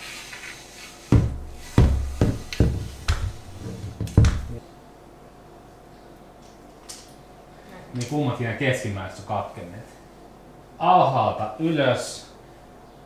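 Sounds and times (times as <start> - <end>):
sharp knocks and thuds on tiled floor: 1.1 - 4.6.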